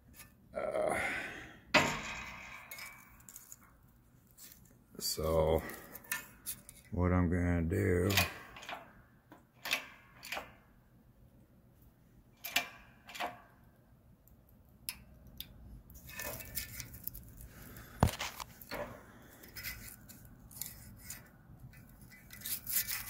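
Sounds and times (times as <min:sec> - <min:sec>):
metal parts and tools clinking: 0:01.8 - 0:03.7, 0:16.0 - 0:17.5, 0:18.3 - 0:23.0.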